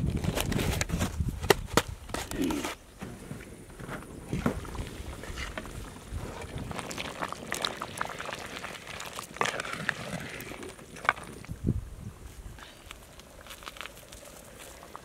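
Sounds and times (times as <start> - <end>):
curry bubbling in pot: 4.5 - 11.5.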